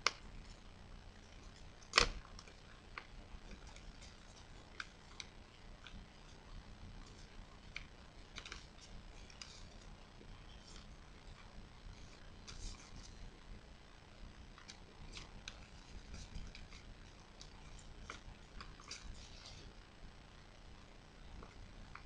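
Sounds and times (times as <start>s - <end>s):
paper crinkling and rustling: 1.4s - 13.4s, 14.5s - 19.8s.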